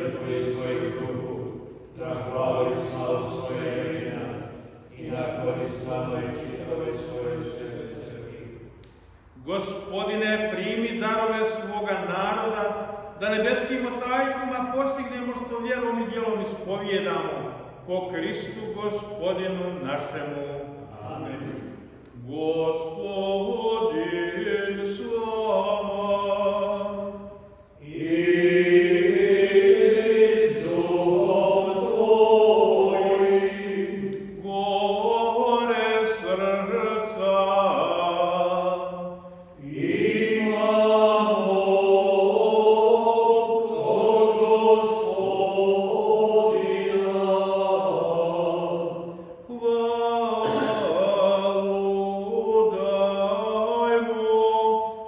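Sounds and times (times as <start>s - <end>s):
priest chanting a sung prayer: 0.0s - 55.0s.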